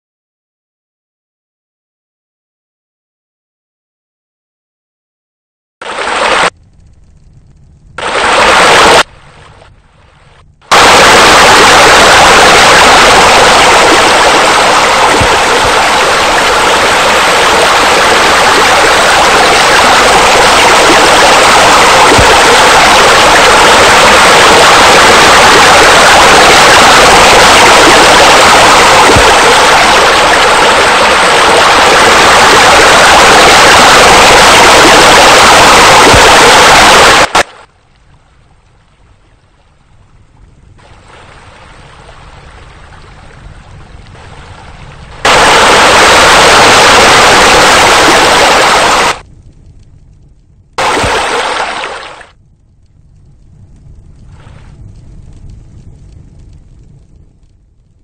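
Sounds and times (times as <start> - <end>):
rushing water: 5.8 - 6.6, 8.0 - 9.9, 10.7 - 39.6, 40.8 - 49.2, 50.8 - 52.4.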